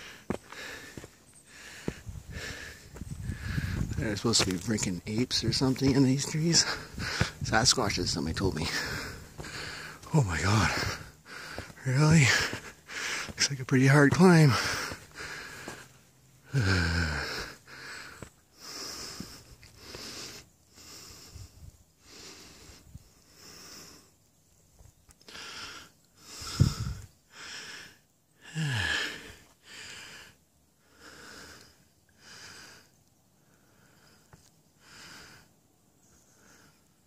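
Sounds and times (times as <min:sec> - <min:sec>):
man panting: 0:00.0 - 0:24.1, 0:25.3 - 0:35.5
man groaning: 0:16.5 - 0:17.5, 0:28.5 - 0:29.2.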